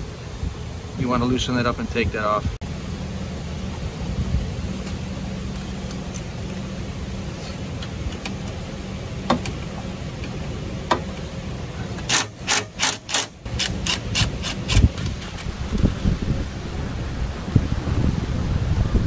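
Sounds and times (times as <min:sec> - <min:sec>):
power ratchet bursts: 0:12.1 - 0:15.4.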